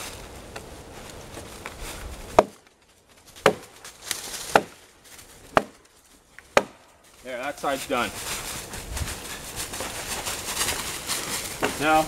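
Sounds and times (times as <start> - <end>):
axe chopping into log: 2.3 - 2.7, 3.4 - 4.8, 5.5 - 5.8, 6.5 - 6.8.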